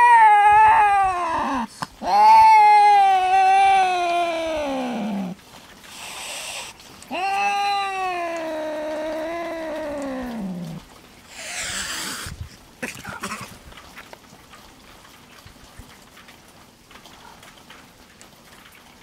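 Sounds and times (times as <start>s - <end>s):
cat yowling: 0.0s - 10.8s, 11.4s - 12.3s
cat hissing: 4.5s - 12.5s.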